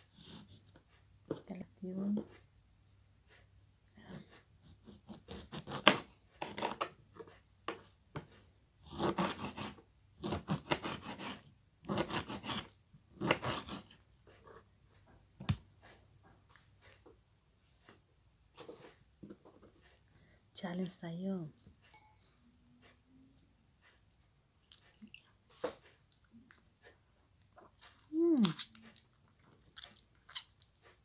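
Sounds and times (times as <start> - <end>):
knife scraping lemon peel: 0.1 - 0.7, 4.0 - 6.8, 8.8 - 14.7.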